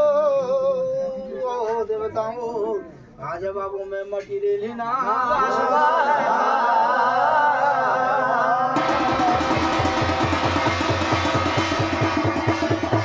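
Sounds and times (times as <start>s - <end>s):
drums beating quickly: 8.8s - 13.0s.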